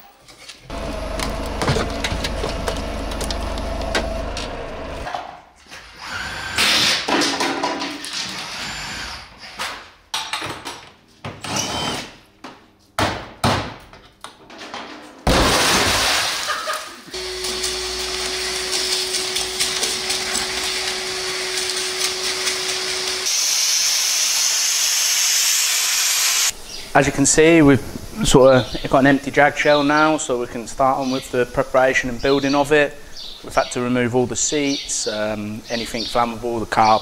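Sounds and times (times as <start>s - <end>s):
industrial vacuum humming: 0.6s - 5.1s, 17.1s - 28.2s.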